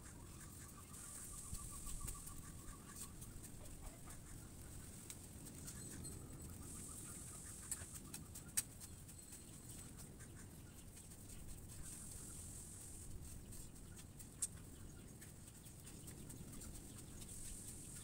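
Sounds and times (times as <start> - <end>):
steady high hiss: 0.2 - 3.3, 11.8 - 13.2.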